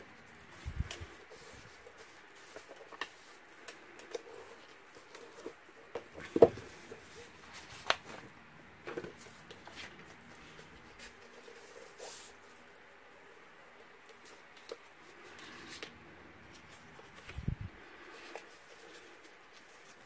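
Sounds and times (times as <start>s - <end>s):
paper rustling and scraping: 0.0s - 5.6s, 8.9s - 12.7s, 14.2s - 20.0s.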